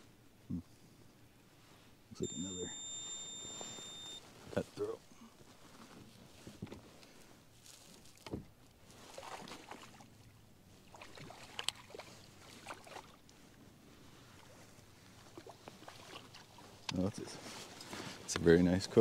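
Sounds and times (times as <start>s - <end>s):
small water splashes: 9.0s - 13.3s, 15.2s - 16.9s.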